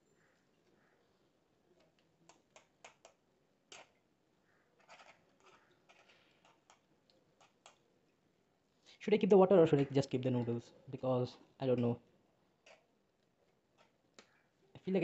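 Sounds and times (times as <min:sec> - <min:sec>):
fork scraping nonstick pan: 0:04.8 - 0:06.8.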